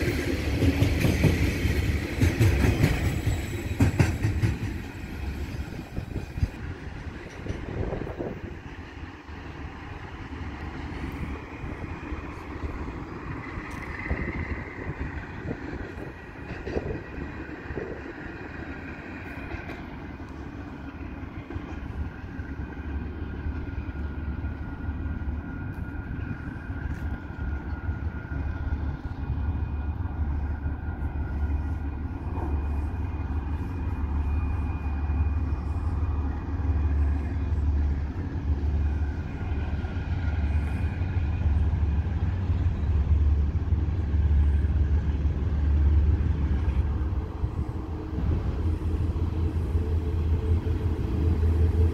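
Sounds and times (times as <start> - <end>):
diesel locomotive engine drone: 0.0 - 51.9.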